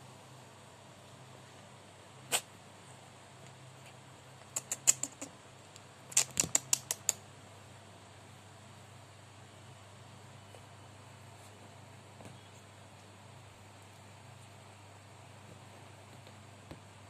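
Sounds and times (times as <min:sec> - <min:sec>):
sharp clicks: 0:04.5 - 0:07.2.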